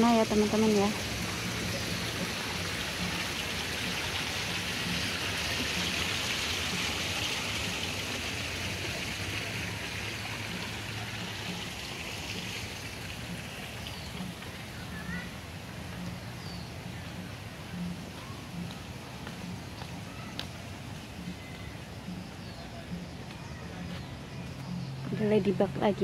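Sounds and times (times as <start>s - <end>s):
running water: 0.0s - 23.9s.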